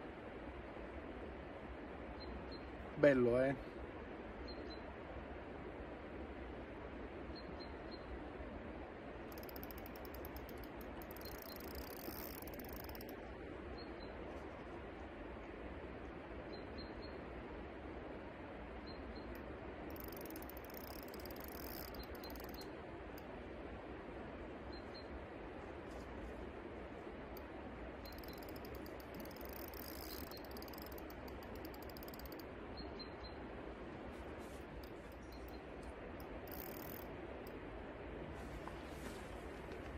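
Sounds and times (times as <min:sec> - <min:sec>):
river flowing: 0:08.2 - 0:13.7, 0:17.5 - 0:32.7, 0:33.4 - 0:39.9
fishing reel ticking rapidly: 0:09.3 - 0:13.2, 0:19.9 - 0:22.7, 0:27.4 - 0:32.5, 0:36.2 - 0:37.6.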